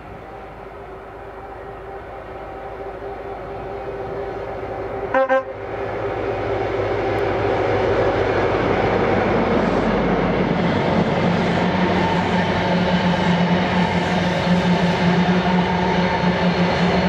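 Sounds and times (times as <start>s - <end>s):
train passing: 0.0s - 17.0s
train horn toot: 5.0s - 5.6s.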